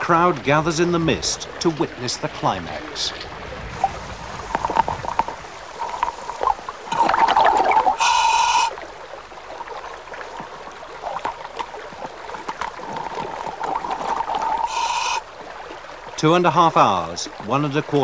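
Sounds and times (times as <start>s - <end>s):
exhaled bubbles gurgling: 0.0s - 16.0s
diver breathing through regulator: 5.8s - 8.8s, 14.5s - 15.2s.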